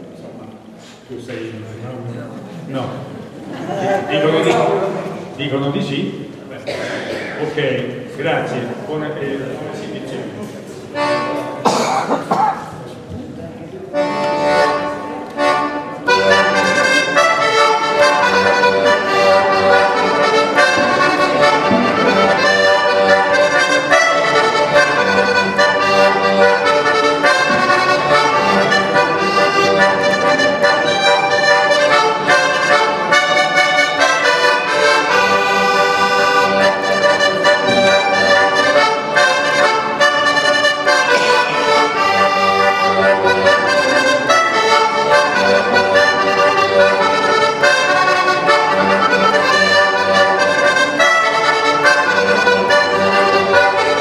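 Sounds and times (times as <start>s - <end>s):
button accordion playing a tune: 10.9s - 11.7s, 13.9s - 54.0s.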